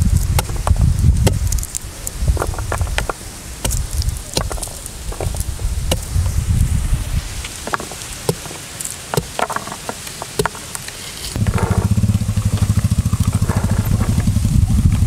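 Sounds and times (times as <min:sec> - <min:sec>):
rustling patter of scattered fruit: 0:00.0 - 0:15.0
low pulsing engine: 0:11.4 - 0:15.0.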